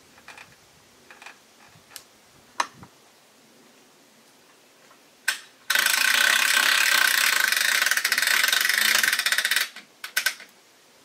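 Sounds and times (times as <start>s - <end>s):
log-turning mechanism rattling: 5.3s - 10.5s.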